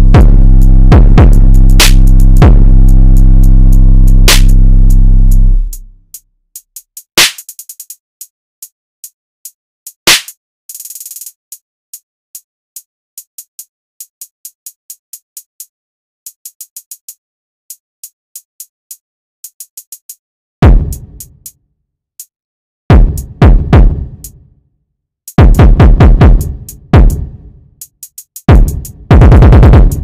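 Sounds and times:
hi-hat ticks and rolls: 0:00.0 - 0:04.6, 0:06.1 - 0:20.2, 0:20.8 - 0:21.6, 0:26.3 - 0:30.0
deep bass: 0:00.0 - 0:06.0, 0:20.6 - 0:21.2, 0:28.6 - 0:30.0
heavy drum hits: 0:20.6 - 0:21.0, 0:22.9 - 0:24.0, 0:25.4 - 0:27.3, 0:28.5 - 0:30.0.

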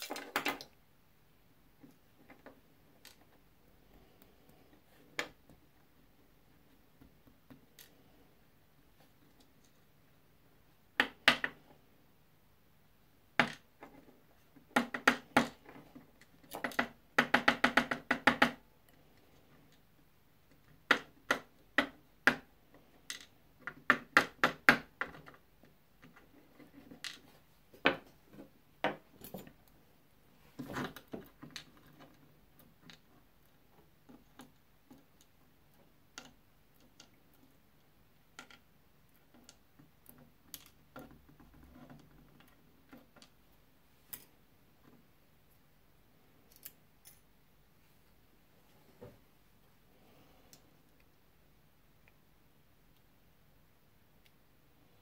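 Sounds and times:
small metal lock parts clicking: 0:46.5 - 0:47.3.

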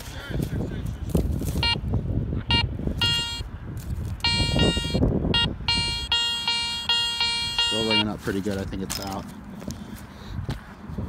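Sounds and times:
metal detector beeps and tones: 0:01.6 - 0:01.8, 0:02.5 - 0:03.5, 0:04.2 - 0:08.4.

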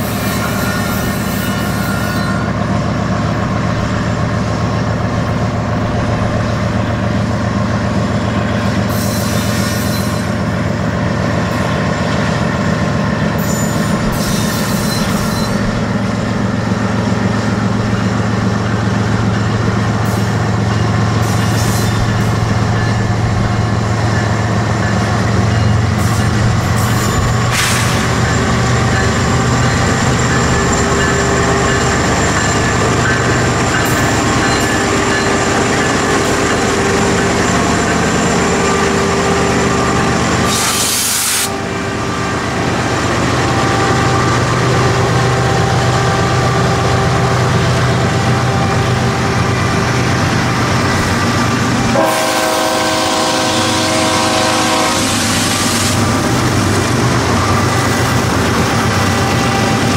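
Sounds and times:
diesel locomotive engine drone: 0:00.0 - 0:59.9
locomotive air horn: 0:40.5 - 0:42.4, 0:51.8 - 0:56.1.

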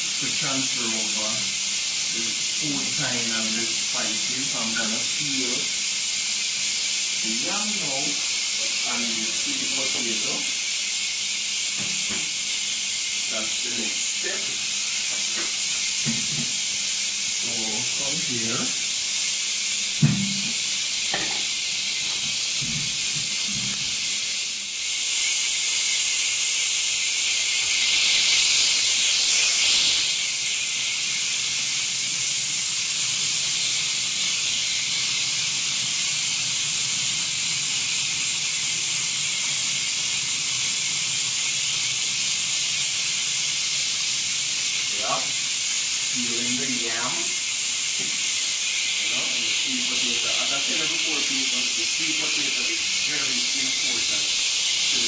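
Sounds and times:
tap water running into a sink: 0:00.0 - 0:55.0
sharp knock: 0:20.0 - 0:20.5.

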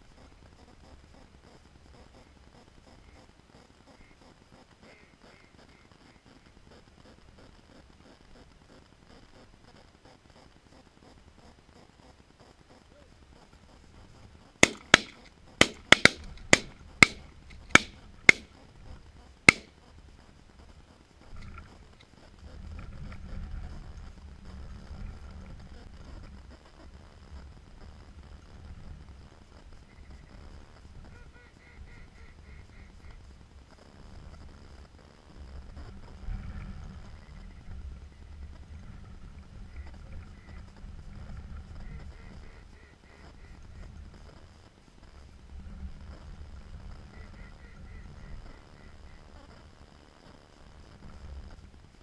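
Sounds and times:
shotgun shots: 0:14.6 - 0:18.5.

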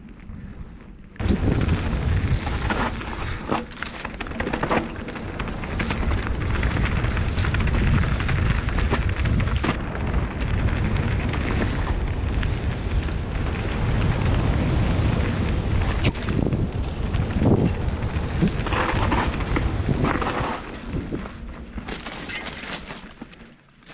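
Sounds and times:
wind on microphone: 0:00.0 - 0:22.7
bike tyres on dirt: 0:00.0 - 0:23.9
bike clicking and rattling: 0:00.1 - 0:23.9.

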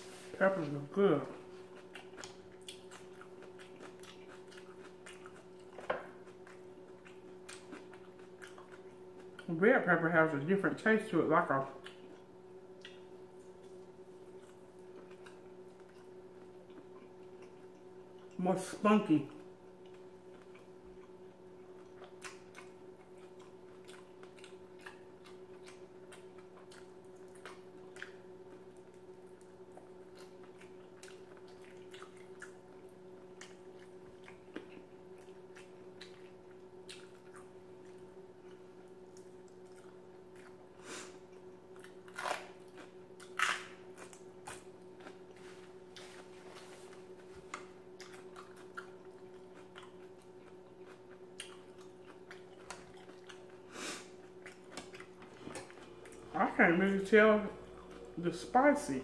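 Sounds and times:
wet chewing clicks: 0:01.7 - 0:09.5, 0:19.8 - 0:40.6, 0:47.4 - 0:53.6
low hum: 0:42.6 - 0:59.0.

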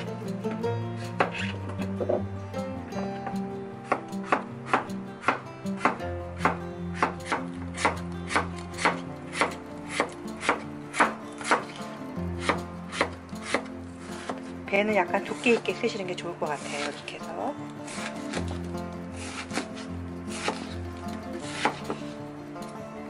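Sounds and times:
background music: 0:00.0 - 0:23.0
knife slicing on wooden board: 0:01.2 - 0:02.2, 0:03.9 - 0:11.8, 0:12.4 - 0:14.5, 0:17.8 - 0:22.2.

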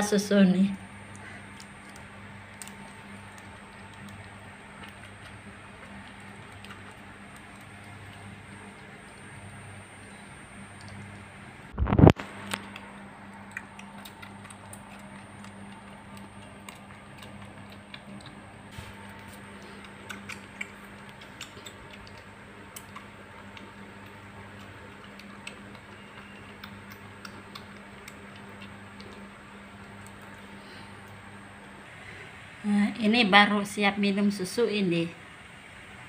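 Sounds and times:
steady low hum: 0:00.0 - 0:36.0
kitten suckling from bottle: 0:02.6 - 0:30.3.

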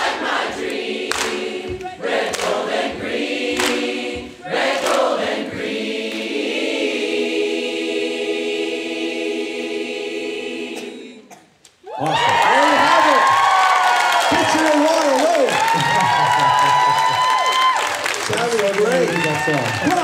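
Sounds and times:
choir singing in harmony: 0:00.0 - 0:11.6.

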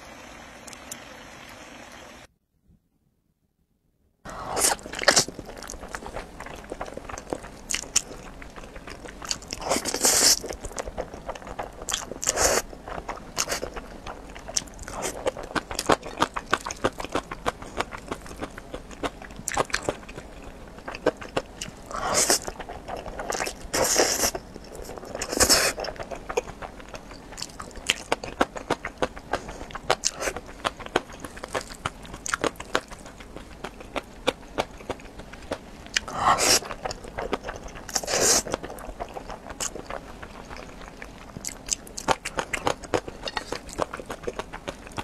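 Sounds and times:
noodles being slurped: 0:04.3 - 0:34.0, 0:36.0 - 0:45.0
wet chewing: 0:04.3 - 0:45.0.

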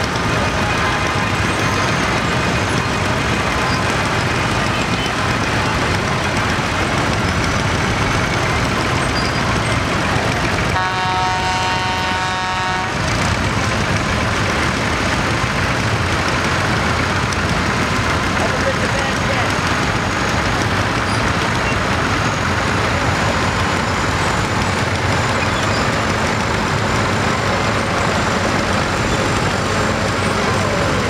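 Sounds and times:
tractor engines running: 0:00.0 - 0:31.0
horn: 0:10.8 - 0:13.0.

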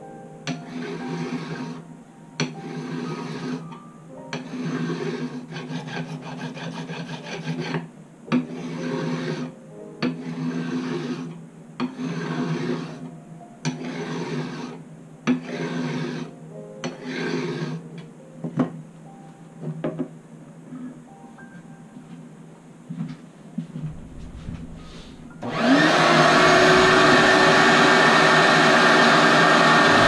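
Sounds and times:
file scraping metal frets: 0:00.5 - 0:01.8, 0:02.5 - 0:03.7, 0:04.4 - 0:07.8, 0:08.4 - 0:17.8.

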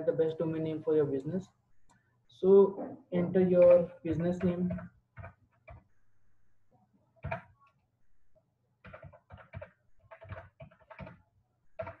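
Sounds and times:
typing on computer keyboard: 0:03.6 - 0:05.9, 0:07.2 - 0:07.5, 0:08.8 - 0:11.2, 0:11.8 - 0:12.0.

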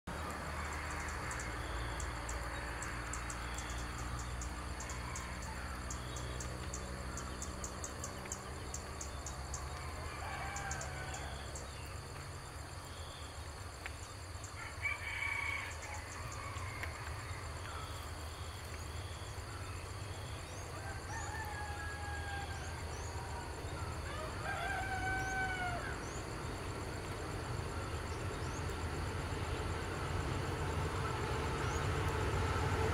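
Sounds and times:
roosters crowing: 0:00.7 - 0:06.4, 0:09.4 - 0:11.8, 0:14.5 - 0:17.6, 0:20.4 - 0:26.6.

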